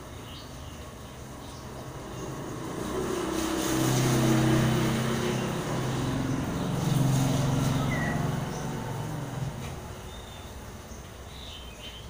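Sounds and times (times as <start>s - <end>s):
scooter engine passing by: 0.9s - 11.0s
rain hissing: 2.4s - 10.9s.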